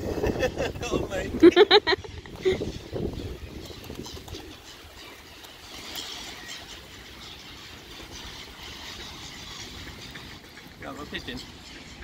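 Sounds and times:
pigeon wings flapping: 0:03.5 - 0:06.9.

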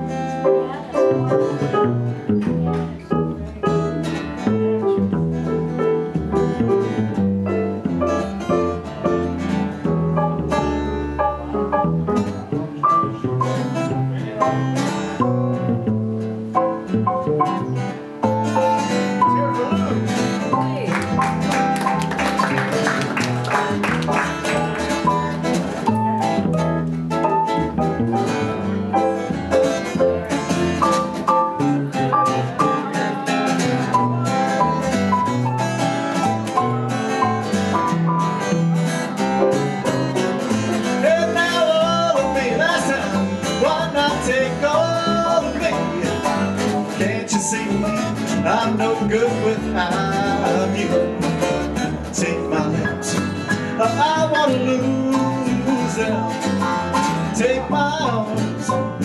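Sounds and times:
plucked double bass: 0:00.0 - 0:59.0
strummed acoustic guitar: 0:00.0 - 0:59.0
man singing: 0:40.9 - 0:59.0.

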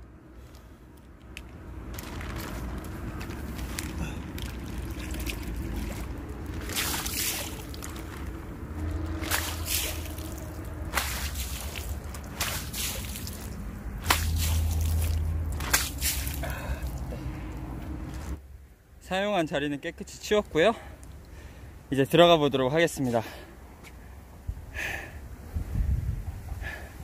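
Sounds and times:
water splashing on concrete: 0:01.9 - 0:17.2
water noise: 0:01.9 - 0:18.4.

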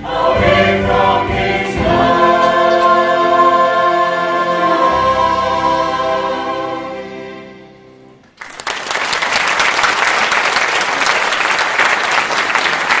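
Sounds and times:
choir holding a chord: 0:00.0 - 0:08.2
audience applause: 0:08.3 - 0:13.0.

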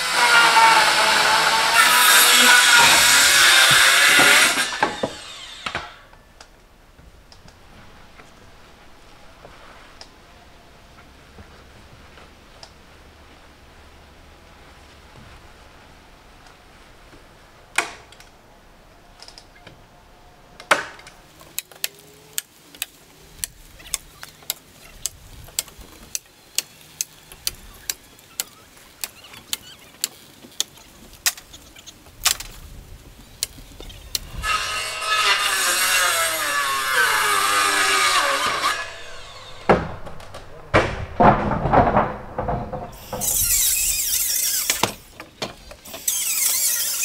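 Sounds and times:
sharp strikes on roof: 0:37.2 - 0:43.0.

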